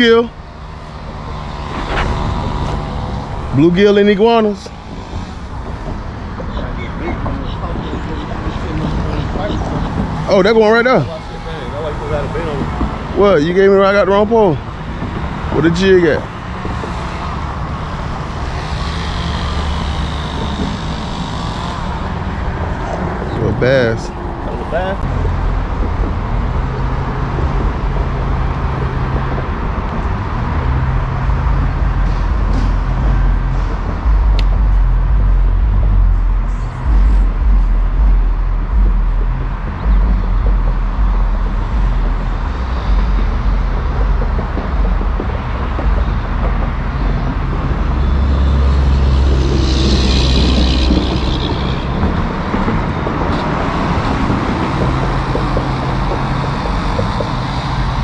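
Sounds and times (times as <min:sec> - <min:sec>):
traffic rumbling on bridge: 0:00.0 - 0:58.0.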